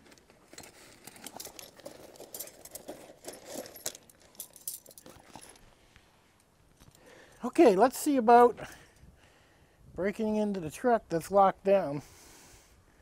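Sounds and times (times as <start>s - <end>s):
light metal clicking and rattling: 0.0s - 5.7s.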